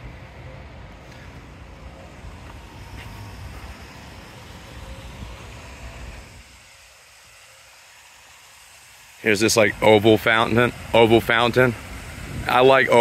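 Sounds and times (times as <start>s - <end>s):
street traffic hum: 0.0s - 13.0s
wind buffeting microphone: 9.6s - 13.0s.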